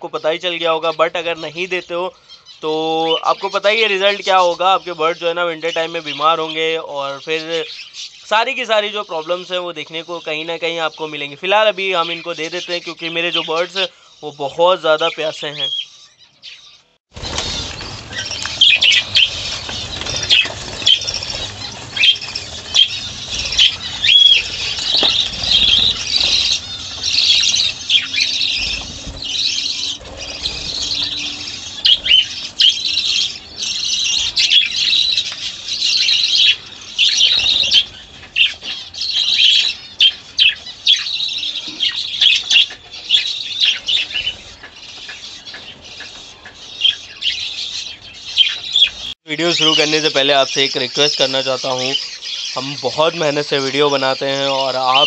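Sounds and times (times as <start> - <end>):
budgerigars chirping: 0.0 - 55.0
wings fluttering: 17.1 - 49.2.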